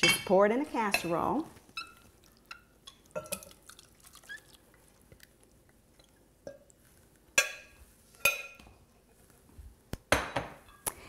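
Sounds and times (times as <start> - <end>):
metal spoon clinking glass bowl: 1.8 - 3.6, 7.4 - 8.7.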